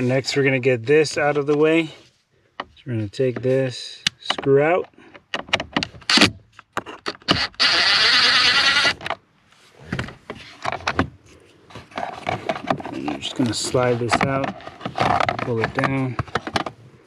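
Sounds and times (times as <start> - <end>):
screw turning noise: 7.1 - 9.1.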